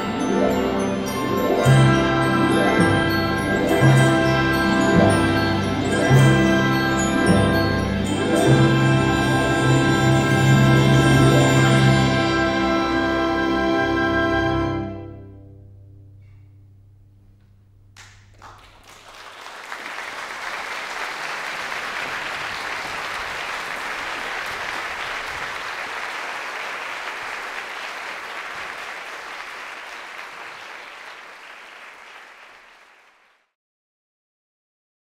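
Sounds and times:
orchestral chord: 0.0s - 16.0s
audience applause: 18.0s - 33.5s.

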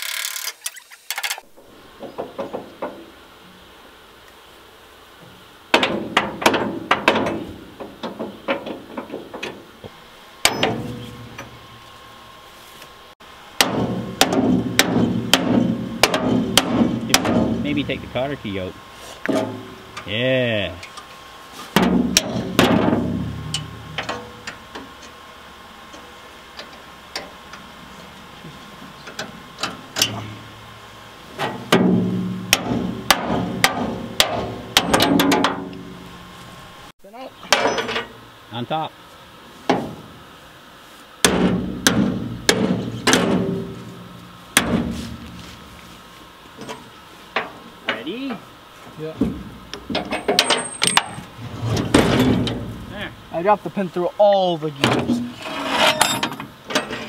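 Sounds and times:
hammer striking steel: 13.6s - 17.6s, 41.2s - 43.8s.

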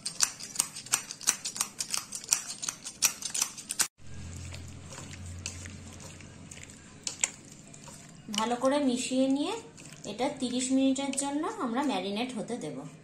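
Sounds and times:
pepper grinder clicking: 0.0s - 3.9s.

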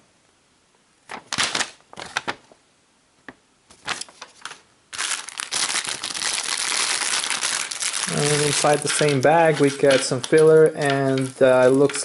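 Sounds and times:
paper rustling: 1.1s - 2.6s, 3.7s - 12.0s
plastic bag crinkling: 1.1s - 2.6s, 3.7s - 12.0s.

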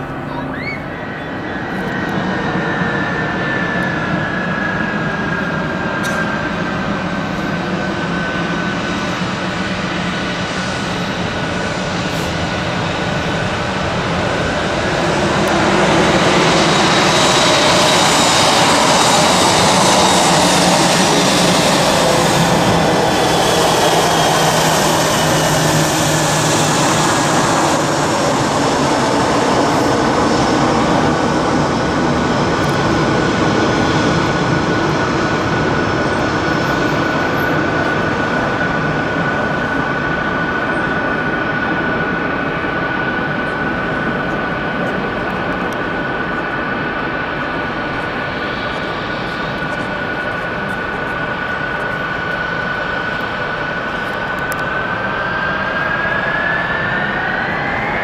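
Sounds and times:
jet engines whining: 0.0s - 58.0s.

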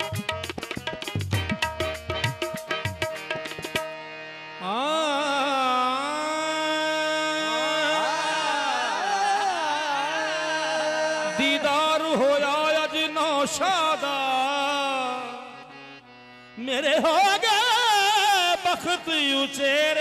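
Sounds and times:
tabla strokes: 0.0s - 4.2s
harmonium drone: 0.0s - 20.0s
person singing wordless vocal: 4.6s - 15.9s, 16.6s - 20.0s.

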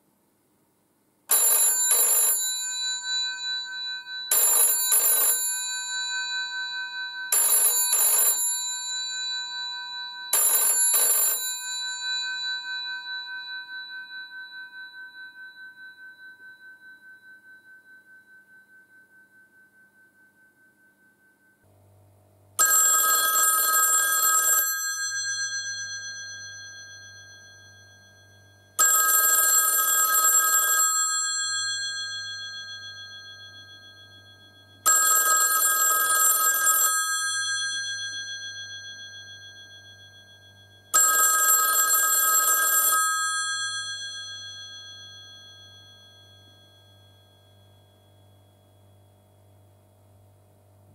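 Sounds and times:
telephone bell ringing: 1.3s - 15.8s, 22.6s - 48.8s.

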